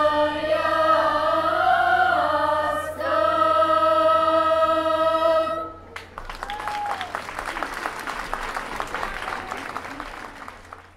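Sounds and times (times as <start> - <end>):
choir of young voices singing: 0.0 - 5.9.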